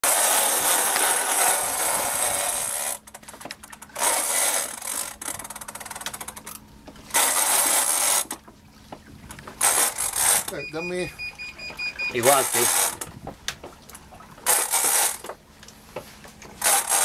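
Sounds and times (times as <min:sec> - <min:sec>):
fishing reel drag screaming: 0:00.0 - 0:03.0, 0:12.2 - 0:13.0
fishing reel clicking: 0:09.6 - 0:10.6, 0:12.4 - 0:13.0, 0:16.6 - 0:17.0.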